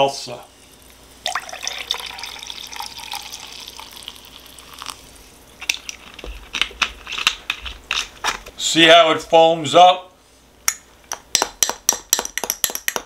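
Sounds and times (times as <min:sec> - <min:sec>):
seltzer pouring and fizzing: 0:01.2 - 0:06.0.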